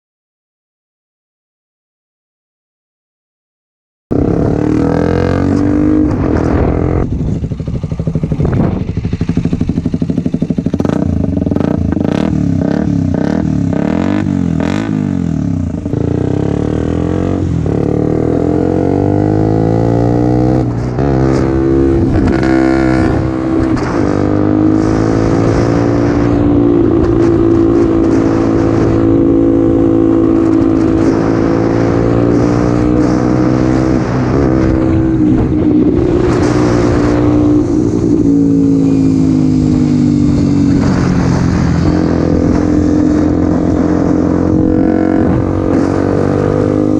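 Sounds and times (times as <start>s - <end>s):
motorcycle engine revving: 4.1s - 46.9s.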